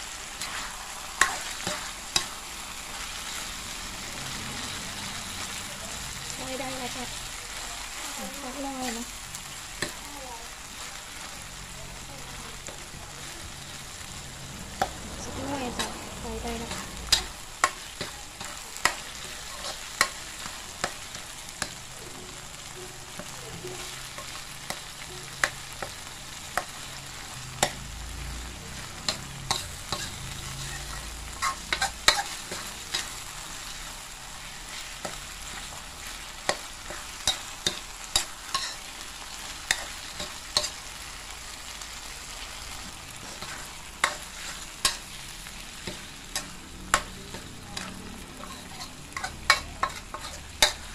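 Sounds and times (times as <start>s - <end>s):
food sizzling in a wok: 0.0s - 50.9s
metal ladle scraping wok: 28.8s - 40.8s, 42.8s - 50.9s.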